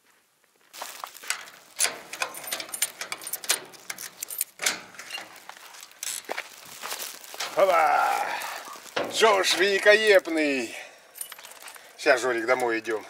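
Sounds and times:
keys jangling: 1.2s - 6.3s, 11.1s - 11.9s
lock and handle clicks: 1.3s - 5.3s.

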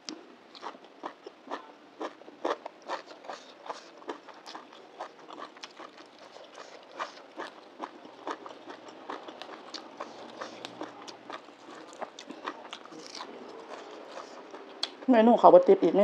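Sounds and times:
lettuce leaves tearing: 11.6s - 14.4s.

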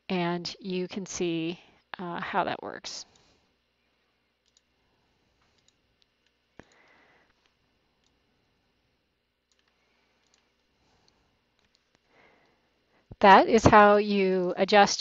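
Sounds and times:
computer mouse click: 4.4s - 4.7s, 5.6s - 5.8s, 9.5s - 10.5s.

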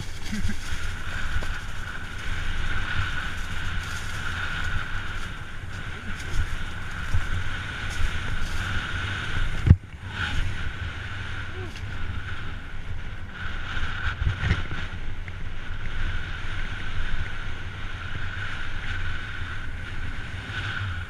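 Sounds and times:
bike knocking over bumps: 0.0s - 8.9s
bike tyres rumbling on dirt: 0.0s - 21.0s
wind buffeting microphone: 0.0s - 21.0s.

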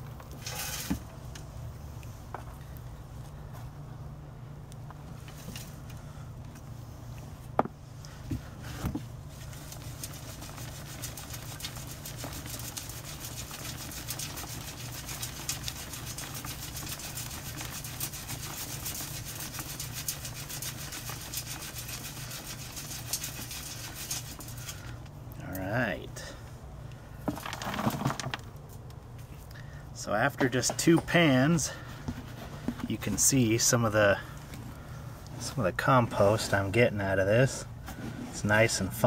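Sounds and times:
low steady hum: 0.0s - 39.0s
crumbs rattling through metal sieve: 9.6s - 24.8s, 27.3s - 28.4s
compost dumped into metal pan: 27.2s - 28.5s.

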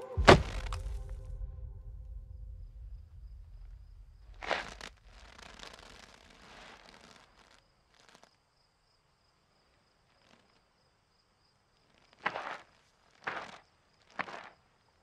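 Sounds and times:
faint rustle: 0.2s - 8.4s.

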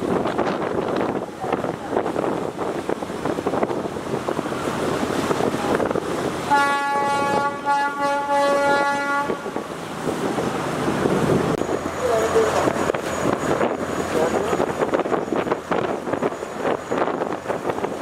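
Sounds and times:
choppy river water rushing: 0.0s - 18.0s
wind buffeting microphone: 0.0s - 18.0s
boat horn blast: 6.4s - 9.6s.

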